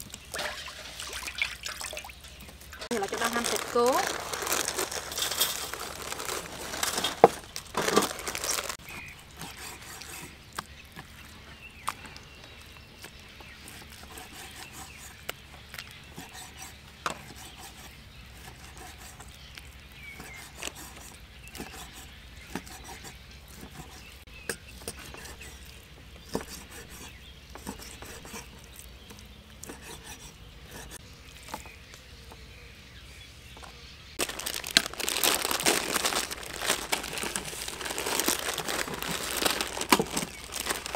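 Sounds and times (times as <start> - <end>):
plastic packets crinkling: 2.7 - 8.8, 34.2 - 40.9.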